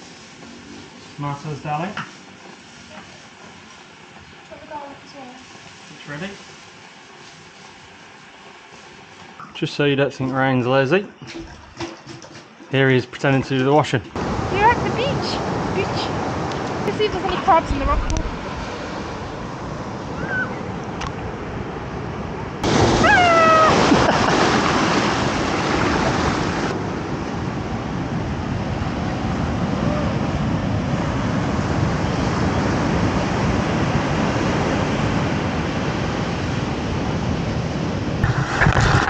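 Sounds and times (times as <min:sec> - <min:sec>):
waves washing on a beach: 0:14.2 - 0:20.2, 0:21.2 - 0:39.0
short falling cry: 0:22.8 - 0:24.2.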